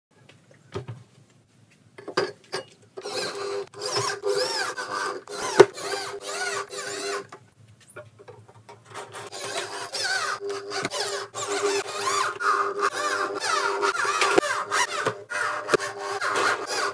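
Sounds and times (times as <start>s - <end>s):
cordless drill motor whine: 3.0s - 7.3s, 9.2s - 16.9s
high-pitched scraping: 3.0s - 7.3s, 9.0s - 16.9s.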